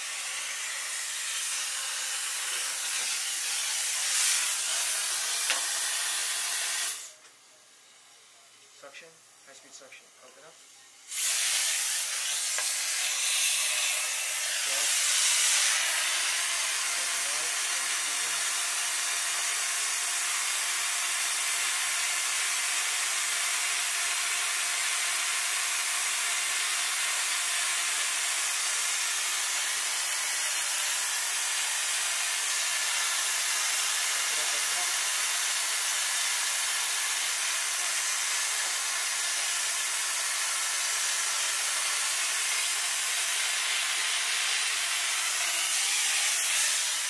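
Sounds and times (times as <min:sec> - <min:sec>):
dental suction hissing: 0:00.0 - 0:07.1, 0:11.1 - 0:23.6.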